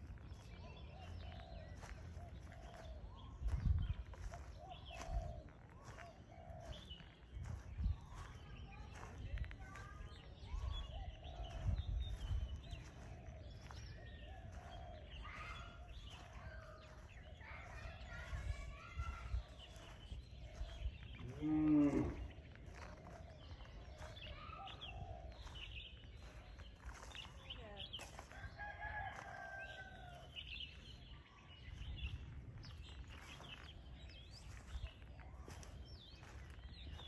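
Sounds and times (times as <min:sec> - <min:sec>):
small birds chirping: 0:00.0 - 0:37.0
rooster crowing: 0:28.6 - 0:30.3.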